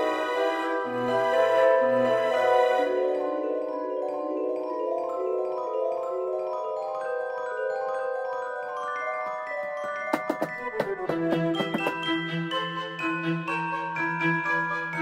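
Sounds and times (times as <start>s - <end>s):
mallet percussion melody: 3.4s - 15.0s.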